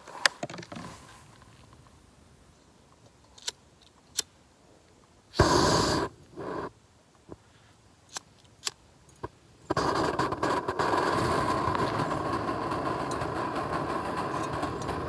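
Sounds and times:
short rush of gas: 5.4 - 6.7
stove burner rushing: 9.7 - 15.0.

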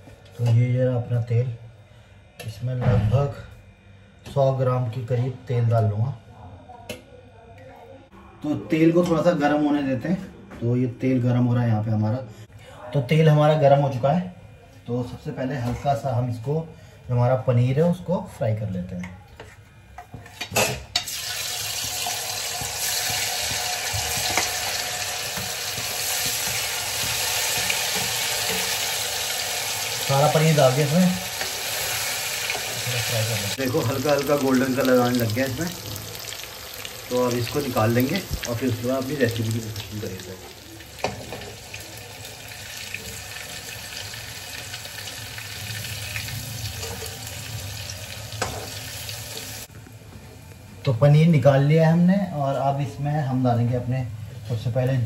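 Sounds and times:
food sizzling in hot oil: 20.5 - 49.7.

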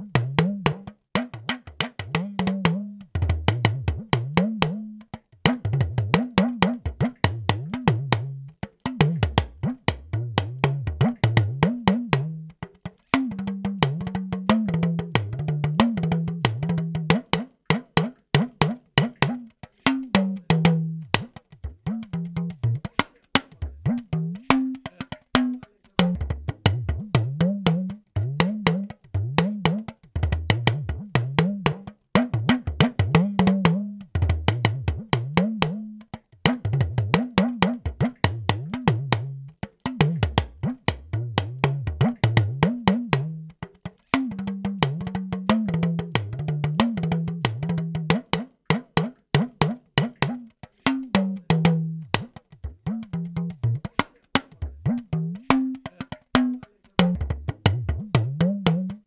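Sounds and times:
talking drum strikes: 0.0 - 59.0.

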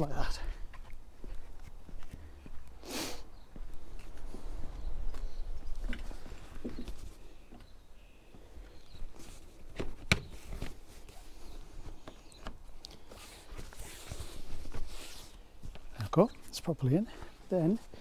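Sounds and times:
fabric rustling: 13.0 - 15.6.

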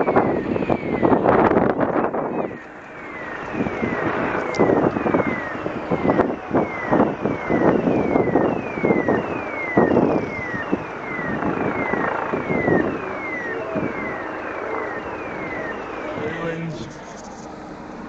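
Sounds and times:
car engine and wind rumble: 0.0 - 18.0
high electronic sweeping tone: 9.6 - 17.7.

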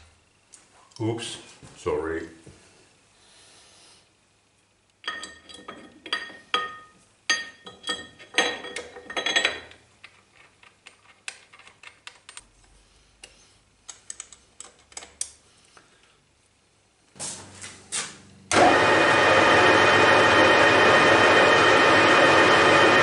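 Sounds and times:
metal-on-metal clinks and scrapes: 5.0 - 10.6.

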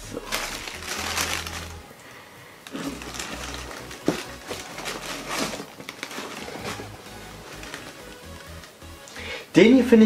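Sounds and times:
tissue paper rustling: 0.0 - 1.9, 2.7 - 8.8.

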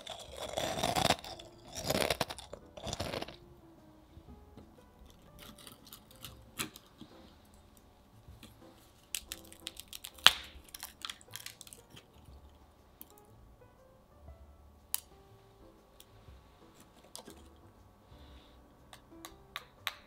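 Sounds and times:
cookie snapping: 0.0 - 3.4, 5.1 - 7.1, 8.4 - 12.4, 18.9 - 20.0
clicks of cookies being handled: 8.4 - 12.3.

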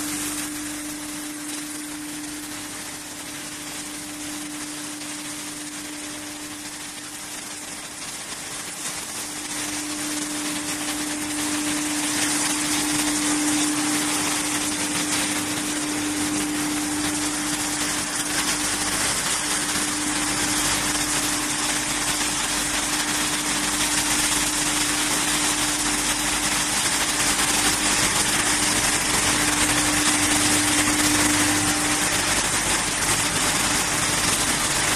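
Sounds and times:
hammer mill machinery running: 0.0 - 34.9
steady machine hum: 0.0 - 34.9.

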